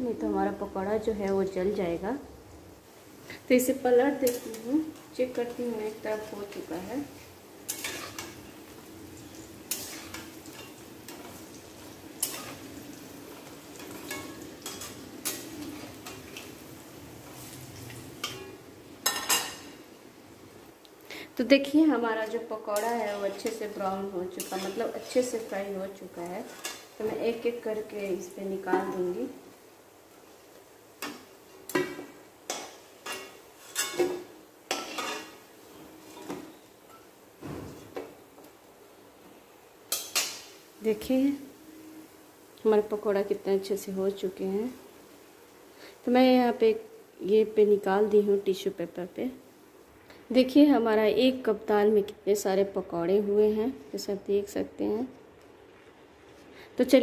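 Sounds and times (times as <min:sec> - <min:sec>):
frying oil sizzling: 0:00.0 - 0:55.1
metal spatula scraping and knocking pan: 0:07.7 - 0:08.4, 0:12.2 - 0:16.5
metal spatula scraping metal pan: 0:07.7 - 0:08.4, 0:09.6 - 0:11.4, 0:12.2 - 0:16.5, 0:22.8 - 0:25.8, 0:26.4 - 0:27.4, 0:31.7 - 0:37.0.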